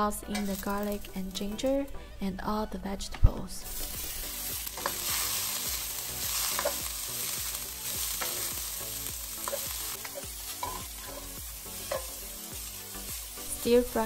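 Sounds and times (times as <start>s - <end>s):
vegetables sizzling in oil: 0.3s - 1.4s, 3.7s - 14.0s
spatula scraping wok: 3.7s - 14.0s.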